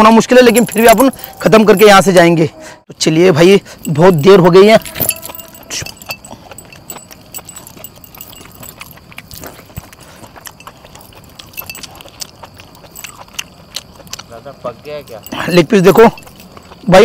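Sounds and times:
metal rings clinking: 0:00.0 - 0:02.2, 0:03.8 - 0:09.1, 0:11.5 - 0:11.9, 0:15.0 - 0:16.5
wet chewing and lip-smacking: 0:03.7 - 0:17.0.

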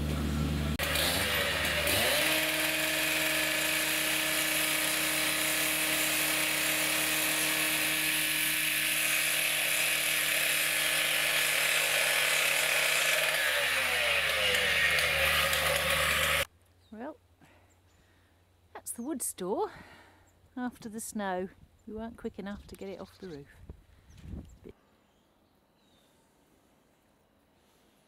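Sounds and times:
angle grinder cutting steel: 0:00.7 - 0:16.5.

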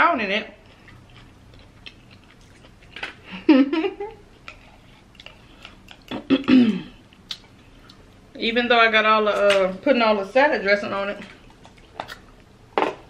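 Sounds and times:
woman's wordless voiced sounds: 0:08.4 - 0:11.4.

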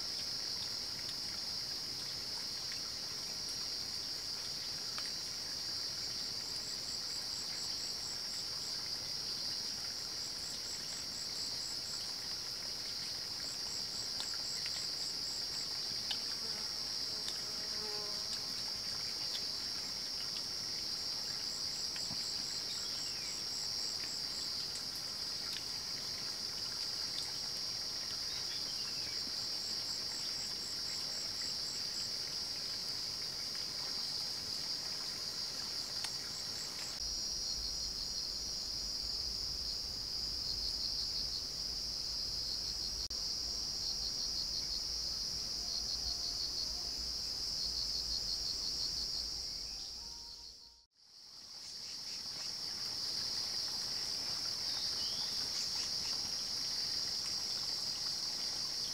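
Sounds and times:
insects chorus trilling: 0:02.4 - 0:58.9.

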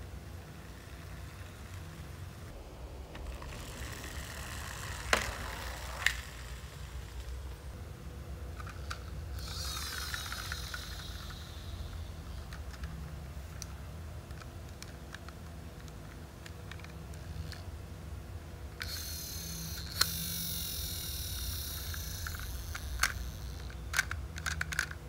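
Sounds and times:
toy truck whirring rattle: 0:03.2 - 0:07.3, 0:08.5 - 0:13.0, 0:14.3 - 0:17.7, 0:18.8 - 0:25.0
toy trucks rolling on tiled floor: 0:03.2 - 0:07.3, 0:08.6 - 0:13.0, 0:15.8 - 0:17.7, 0:18.8 - 0:25.0
sharp plastic clacks: 0:21.8 - 0:25.0.

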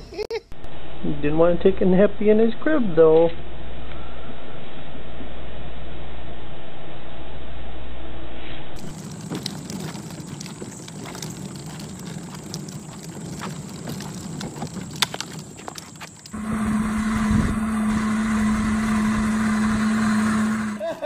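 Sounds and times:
plastic wheels rattling on concrete: 0:08.8 - 0:16.4
electric toy car motor humming: 0:16.3 - 0:21.0.

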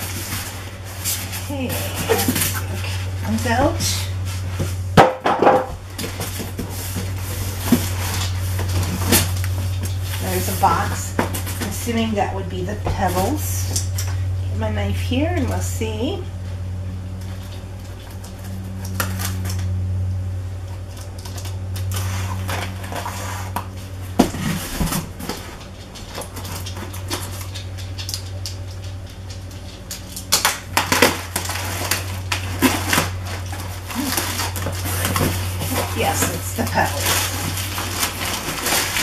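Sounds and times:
steady low hum: 0:00.0 - 0:39.0
cardboard scraping and clicking: 0:30.4 - 0:39.0.

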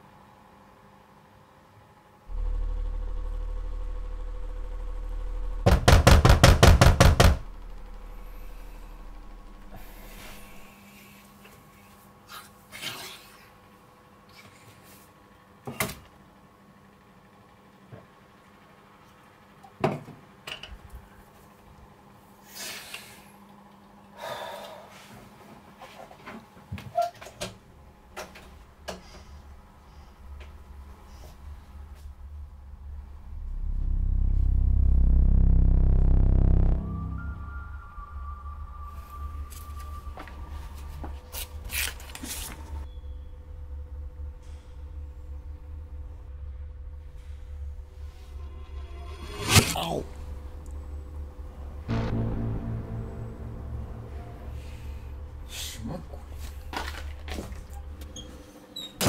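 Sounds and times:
low steady hum: 0:00.0 - 0:12.0, 0:27.6 - 0:58.8
loud sharp knocks: 0:05.6 - 0:07.5.

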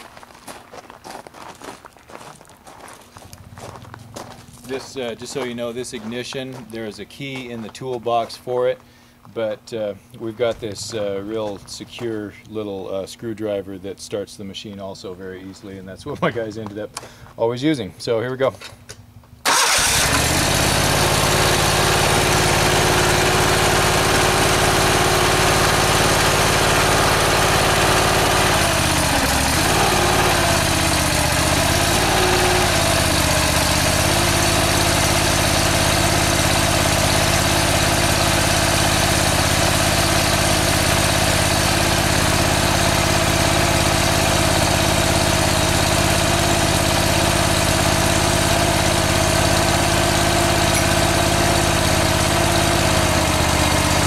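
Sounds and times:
air-cooled engine running: 0:19.4 - 0:54.0.

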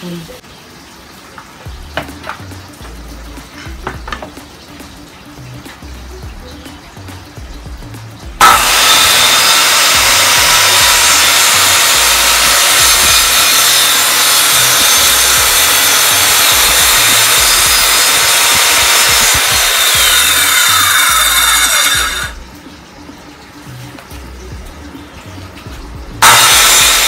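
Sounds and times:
circular saw cutting plywood: 0:08.4 - 0:22.4, 0:26.2 - 0:27.0.

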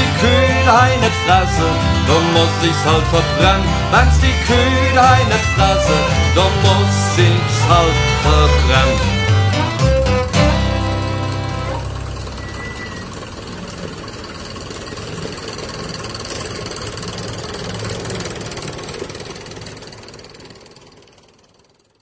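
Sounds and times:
music chord: 0:00.0 - 0:12.4
old tractor engine idling: 0:00.0 - 0:22.0.

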